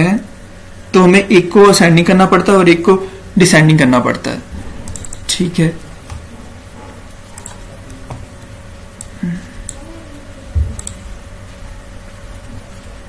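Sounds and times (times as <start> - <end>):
faint steady hum: 0.0 - 13.0
keyboard and mouse clicks: 4.8 - 5.3, 7.2 - 9.8, 10.6 - 11.0.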